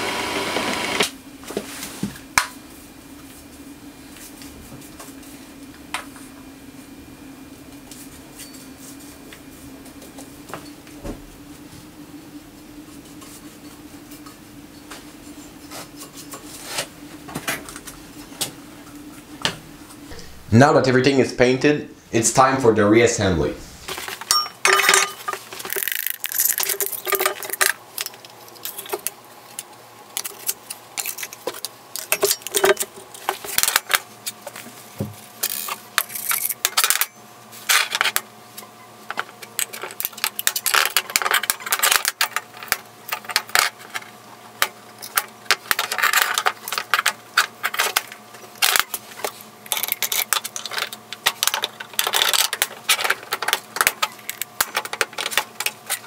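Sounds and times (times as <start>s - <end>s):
metal bolts and washers clinking: 24.2s - 29.0s.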